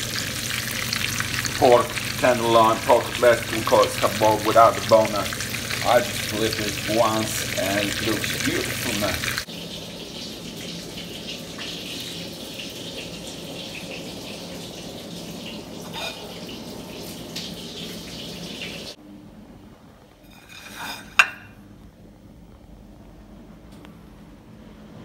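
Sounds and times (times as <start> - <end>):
cutlets sizzling in a pan: 0.0 - 19.0, 20.3 - 21.5.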